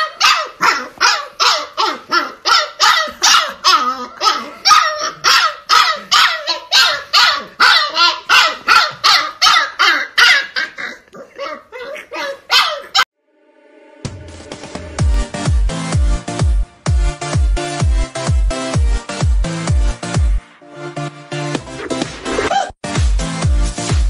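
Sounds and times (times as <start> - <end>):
puppy barking and yelping: 0.0 - 13.1.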